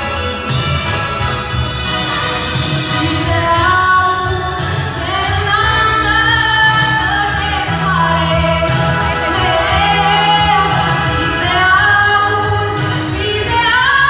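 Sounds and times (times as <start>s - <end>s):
instrumental music with bass line: 0.0s - 14.0s
woman singing into microphone: 2.9s - 14.0s.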